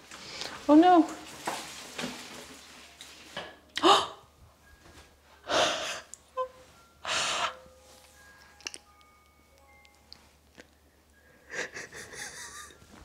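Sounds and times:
woman gasping: 3.8s - 4.2s.

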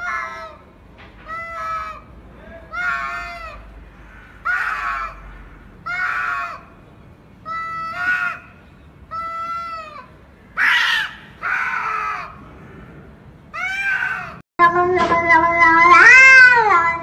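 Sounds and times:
cats yowling: 0.0s - 2.1s, 2.7s - 3.7s, 4.4s - 5.2s, 5.8s - 6.7s, 9.1s - 12.4s, 13.5s - 14.4s, 15.6s - 17.0s
cat screeching: 2.7s - 3.6s, 9.1s - 12.4s, 13.5s - 14.4s, 15.6s - 17.0s.

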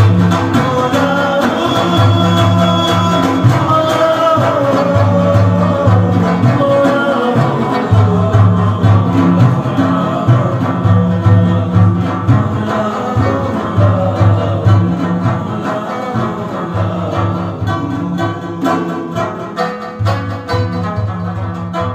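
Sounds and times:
frame drum beat: 0.0s - 21.9s
plucked lute melody: 0.0s - 21.9s.

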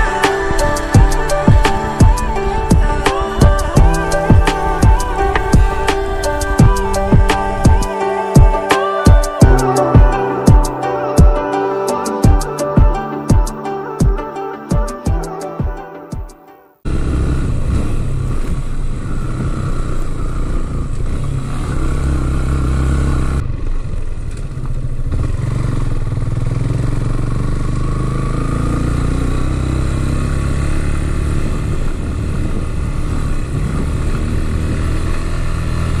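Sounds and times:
motorcycle engine running: 16.9s - 36.0s.

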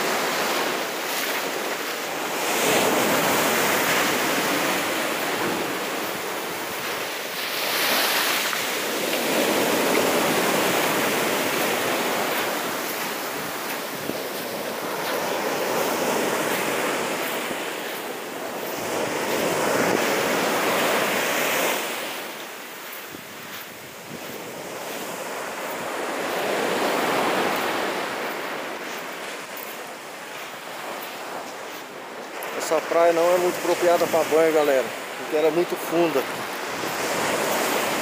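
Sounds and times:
surf breaking on beach: 0.0s - 38.0s.

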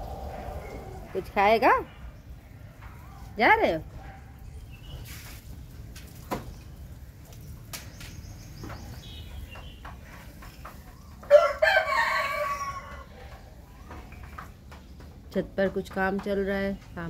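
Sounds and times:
rooster crowing: 0.0s - 1.1s, 11.3s - 13.1s.

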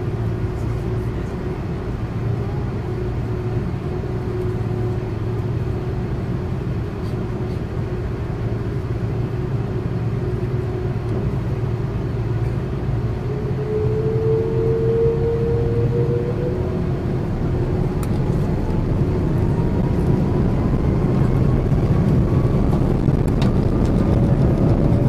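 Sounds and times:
jet engines droning: 0.0s - 25.0s
engine whine rising: 7.9s - 25.0s.

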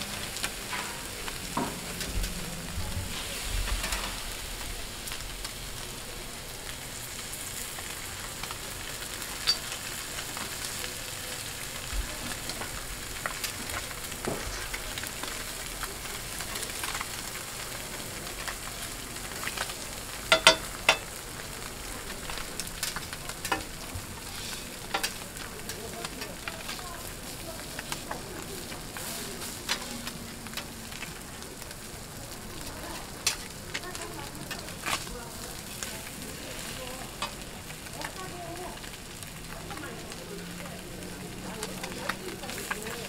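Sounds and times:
fish sizzling in oil: 0.0s - 43.0s
metal spatulas clacking on griddle: 9.4s - 9.7s, 20.3s - 21.1s, 22.8s - 23.8s, 24.6s - 26.8s, 33.2s - 33.9s.

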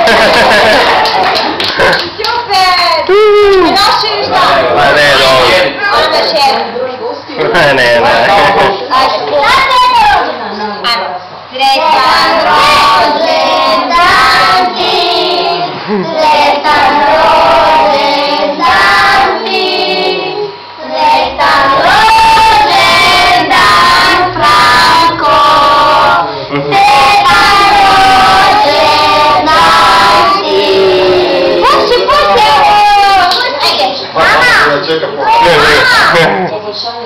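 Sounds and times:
group singing with children: 11.6s - 34.6s.

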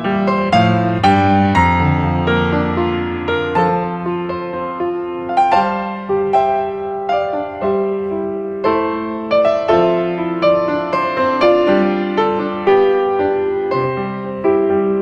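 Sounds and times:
gentle piano melody: 0.0s - 15.0s.

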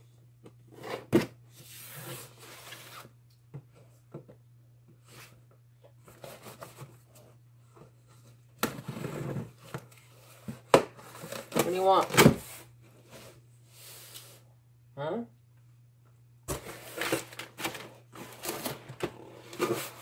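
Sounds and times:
cardboard box scraping on table: 0.7s - 3.1s, 8.8s - 9.6s, 16.5s - 20.0s.

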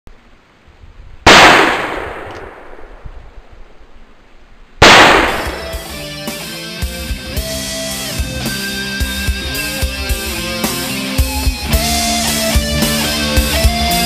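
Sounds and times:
black-powder gunshots: 1.3s - 3.0s, 4.8s - 6.0s
guitar rock music: 5.2s - 14.0s.

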